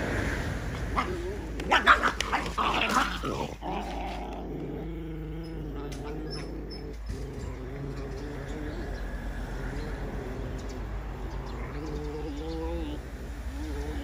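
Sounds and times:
puppy growling: 0.8s - 14.0s.

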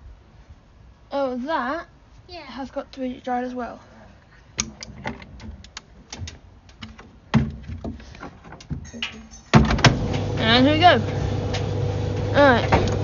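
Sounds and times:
loud thud: 9.5s - 10.1s
dryer drum motor humming: 9.6s - 13.0s.

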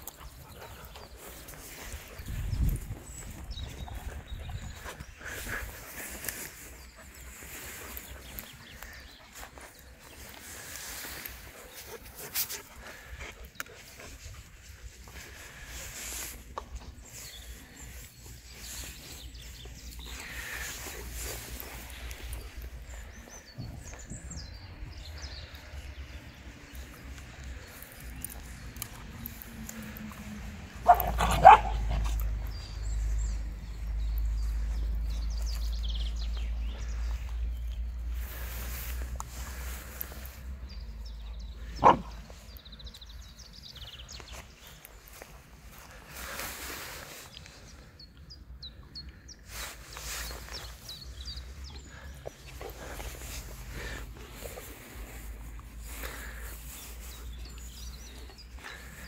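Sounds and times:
rustling noise: 0.0s - 24.3s, 38.0s - 40.6s, 44.1s - 47.7s, 49.5s - 51.3s
dog barking: 30.8s - 32.1s, 41.8s - 42.2s.

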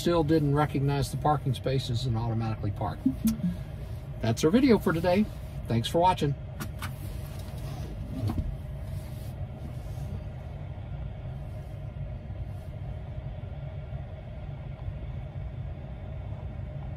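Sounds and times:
low rumble in car cabin: 0.0s - 16.9s
faint even hum: 2.6s - 4.4s.

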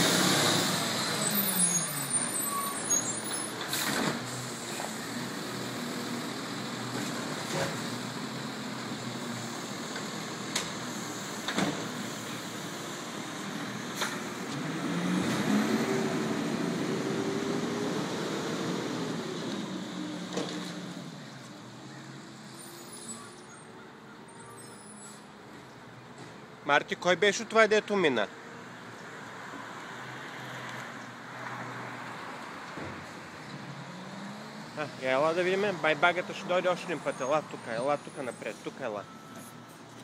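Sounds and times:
garbage truck diesel engine: 0.0s - 26.7s.

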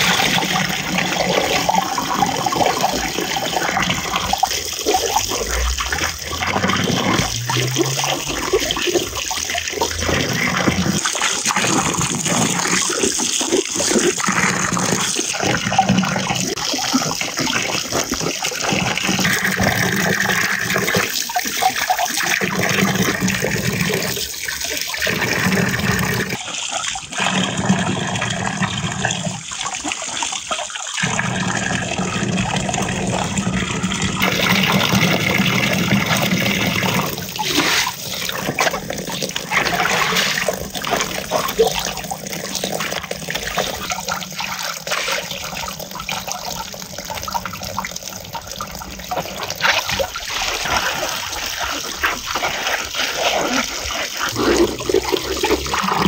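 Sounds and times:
water splashing onto vegetables: 34.2s - 56.0s.

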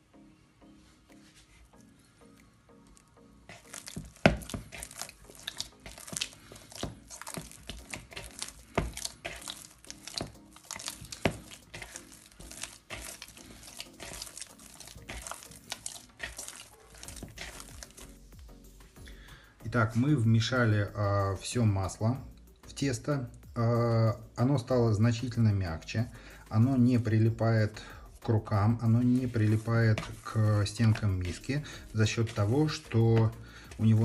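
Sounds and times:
faint background music: 0.0s - 34.0s
wet smacks of kneading dough: 2.9s - 19.1s, 26.1s - 34.0s.

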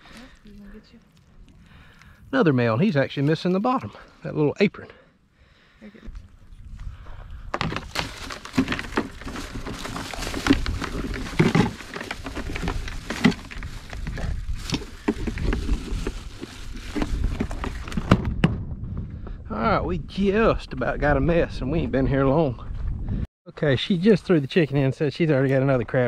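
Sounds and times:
crabs clattering in plastic cooler: 7.6s - 14.1s.

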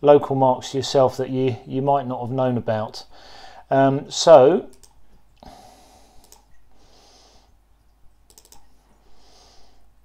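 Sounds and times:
computer mouse clicks: 4.7s - 5.0s, 6.2s - 6.6s, 8.3s - 8.8s.

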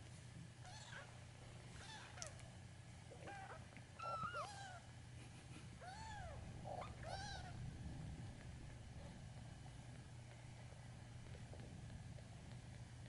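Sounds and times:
kitten mewing: 5.8s - 7.6s.

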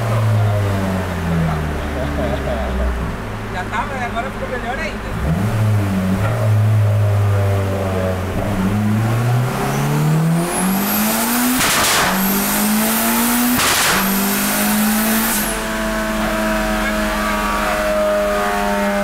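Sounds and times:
car engine accelerating: 0.0s - 19.0s
high turbo whistle: 10.5s - 19.0s.

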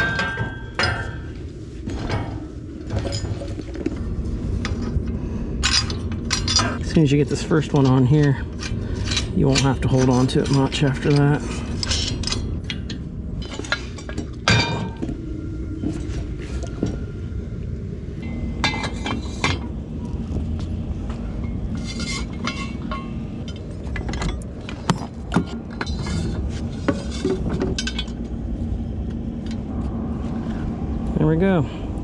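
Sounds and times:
faint hum: 0.0s - 32.0s
steady low rumble: 0.0s - 32.0s
metal parts clinking: 5.6s - 15.0s.

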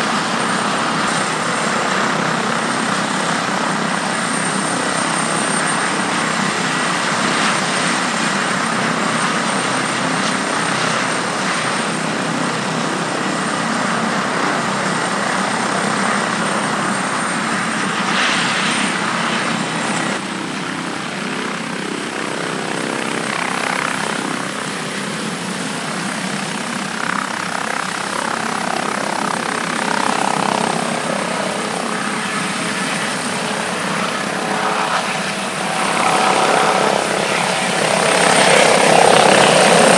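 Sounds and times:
helicopter rotor noise: 0.0s - 39.9s
helicopter turbine whine: 0.0s - 39.9s.

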